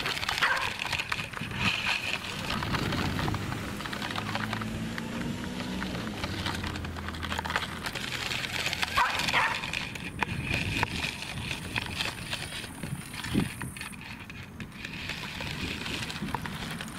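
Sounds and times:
running steps on gravelly dirt: 0.0 - 16.9
dog barking: 0.4 - 0.8, 9.0 - 9.6.

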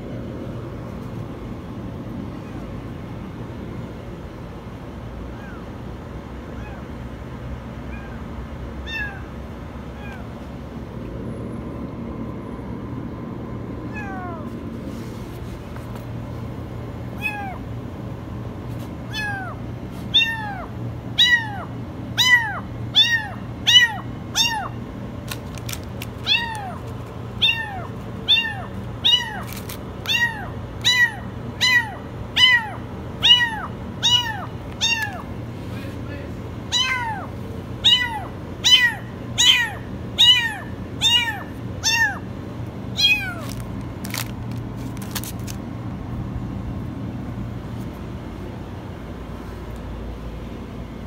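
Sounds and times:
kitten meowing: 5.3 - 5.7, 6.5 - 6.9, 7.9 - 8.2, 8.8 - 9.3, 9.9 - 10.3, 13.9 - 14.5, 17.2 - 17.6, 19.1 - 24.7, 26.2 - 26.8, 27.4 - 35.3, 36.7 - 42.2, 43.0 - 43.6.

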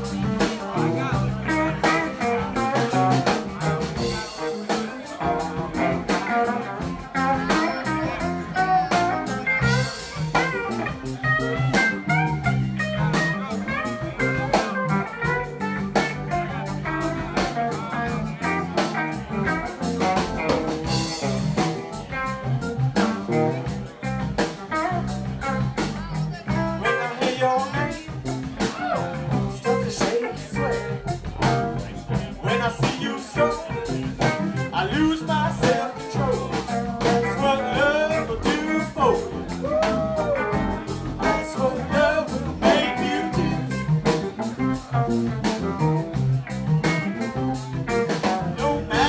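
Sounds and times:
drum kit with cymbals: 0.0 - 49.0
electric bass: 0.0 - 49.0
electric guitar lead: 0.0 - 49.0.

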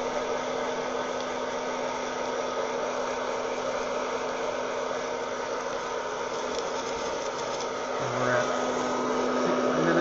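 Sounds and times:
hot-air popper fan humming: 0.0 - 10.0.

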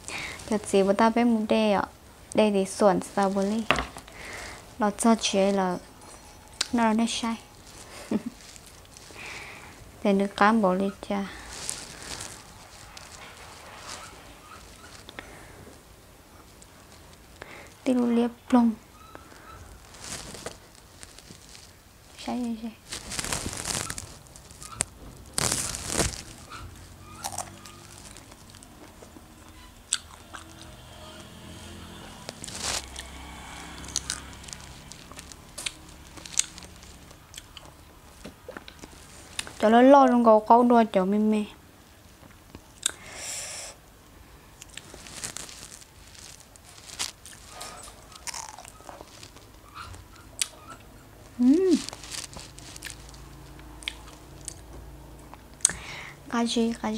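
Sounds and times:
person chewing: 23.0 - 31.4, 32.3 - 39.6, 42.8 - 43.0, 44.6 - 50.8, 51.4 - 54.6
crunchy bites of fruit: 23.0 - 37.8, 44.6 - 49.8.

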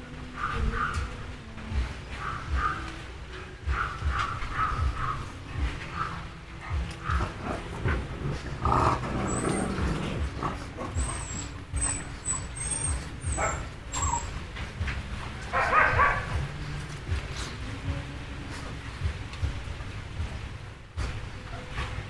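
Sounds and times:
small dogs barking: 0.2 - 1.3, 2.1 - 14.6, 15.3 - 16.6.

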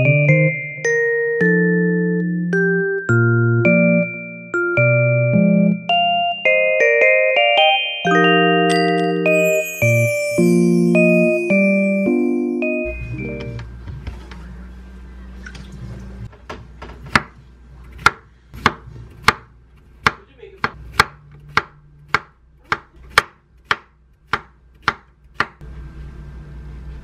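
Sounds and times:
knife chopping on wooden board: 16.8 - 25.6.

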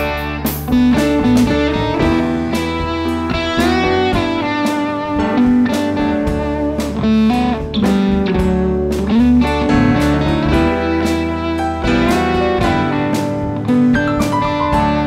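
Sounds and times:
bass guitar: 0.0 - 15.0
drums: 0.0 - 15.0
electric guitar lead with bent notes: 0.0 - 15.0.

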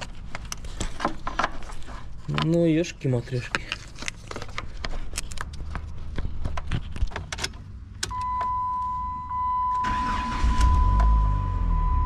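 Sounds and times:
car starter cranking: 9.8 - 11.7.

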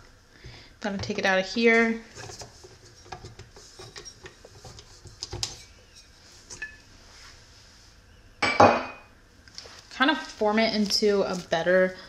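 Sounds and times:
clicks and scrapes of metal and glass: 2.1 - 6.8.

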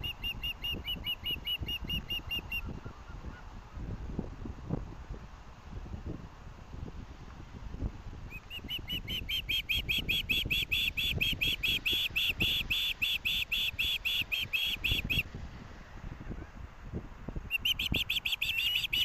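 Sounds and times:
young bird begging chirps: 8.3 - 15.2, 17.5 - 19.0.

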